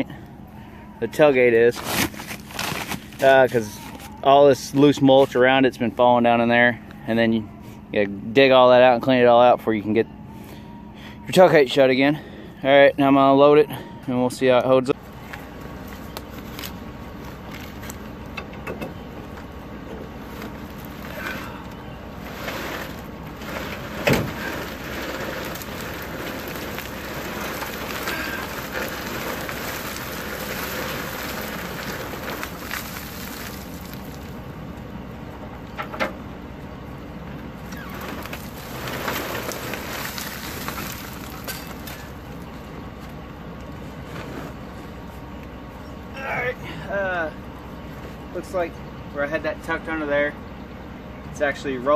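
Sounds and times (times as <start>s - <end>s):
wood mulch sliding and spilling: 1.1s - 6.3s, 20.0s - 34.5s, 37.6s - 42.7s.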